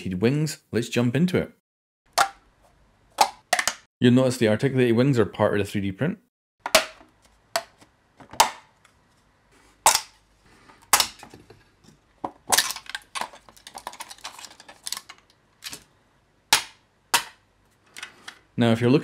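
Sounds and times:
plastic parts clacking and snapping: 3.2s - 3.9s, 6.6s - 8.9s, 9.8s - 15.9s, 16.5s - 18.5s.

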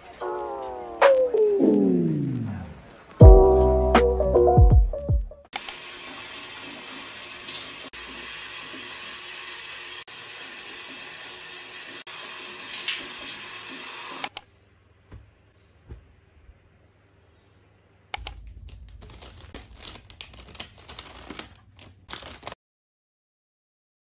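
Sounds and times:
shower water running: 5.6s - 14.3s, 18.3s - 22.6s.

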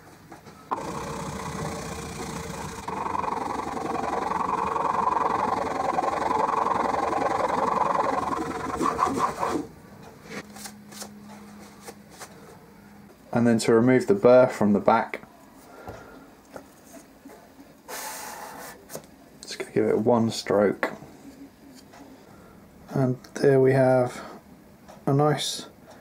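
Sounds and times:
chisel rubbing on strop: 0.7s - 9.7s.

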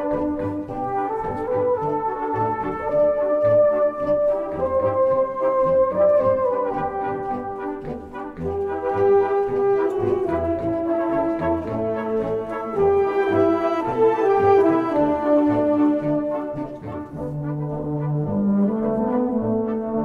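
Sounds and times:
brass band playing a march: 0.0s - 20.0s.

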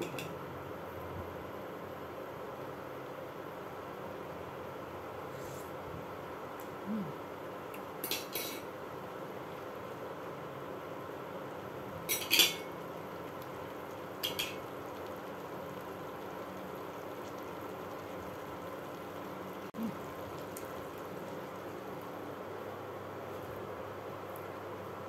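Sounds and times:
steady hum: 0.0s - 25.0s
utensils clinking against a wok: 8.0s - 8.6s, 12.1s - 12.7s, 14.2s - 14.6s.

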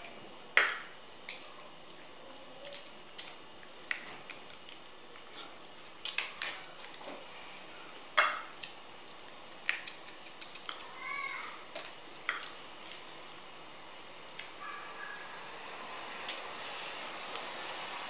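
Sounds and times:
crab shell cracking by hand: 9.6s - 11.0s.

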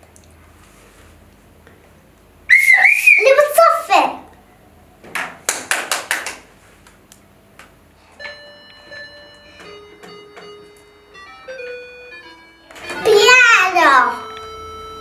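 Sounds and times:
hand claps: 5.2s - 7.0s
toy keyboard beeping notes: 8.2s - 15.0s.

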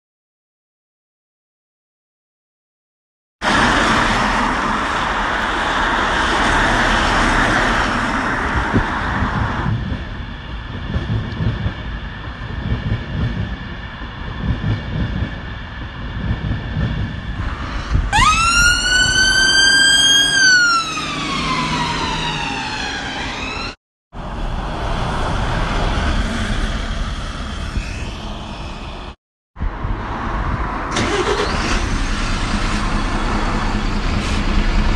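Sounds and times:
road traffic noise: 3.4s - 12.8s, 15.2s - 34.9s
ambulance siren wail: 18.0s - 23.8s.

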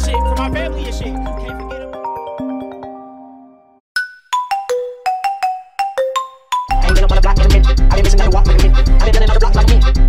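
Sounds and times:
hip hop beat with heavy bass: 0.0s - 3.0s, 5.6s - 10.0s
bell-like ringtone melody: 0.0s - 7.6s.

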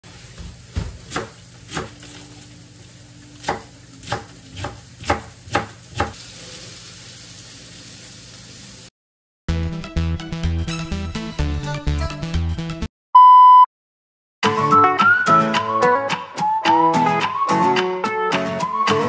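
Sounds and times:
knife chopping on wooden board: 0.4s - 2.1s, 3.4s - 6.2s.

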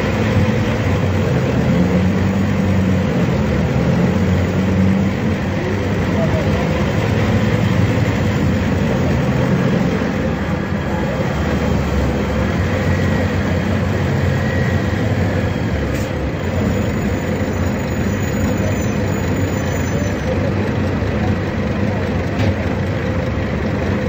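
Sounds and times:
bus diesel engine running: 0.0s - 24.0s.

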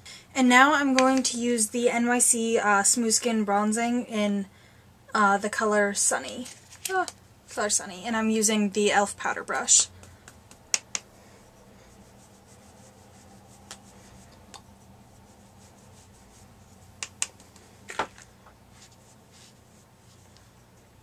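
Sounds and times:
low steady hum: 0.0s - 21.0s
powder brush rubbing on skin: 11.3s - 17.7s, 18.7s - 21.0s.

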